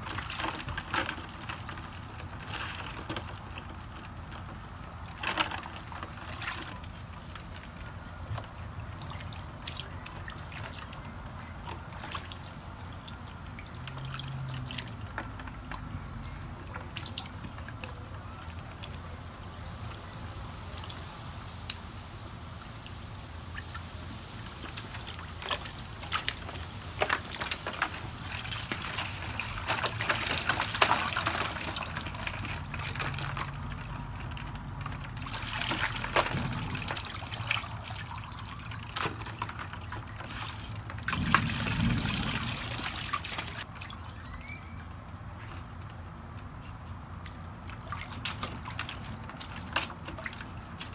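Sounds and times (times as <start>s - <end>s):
water sloshing and dripping: 0.0s - 50.9s
dog splashing in water: 35.2s - 45.7s.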